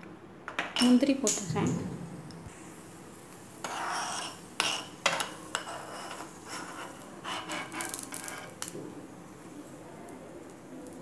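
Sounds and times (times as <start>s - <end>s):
spoon scraping a pan: 3.6s - 8.7s.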